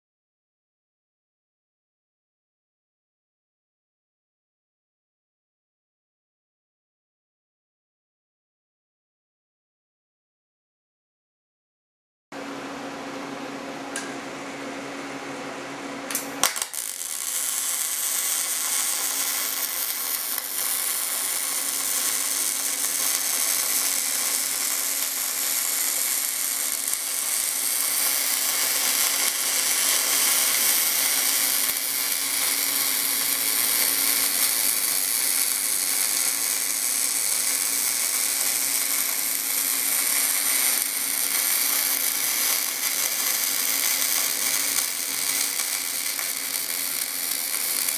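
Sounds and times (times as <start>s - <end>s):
welding arc crackling: 16.1s - 47.9s.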